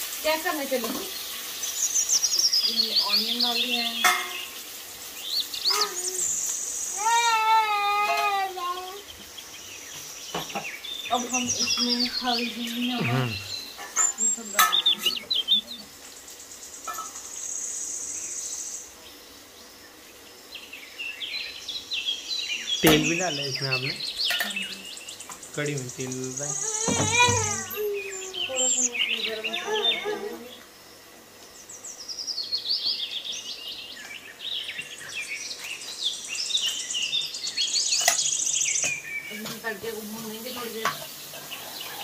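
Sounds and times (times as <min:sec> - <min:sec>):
insect trilling: 0:00.0 - 0:32.4
songbirds chirping and singing: 0:00.7 - 0:30.7, 0:31.4 - 0:42.0.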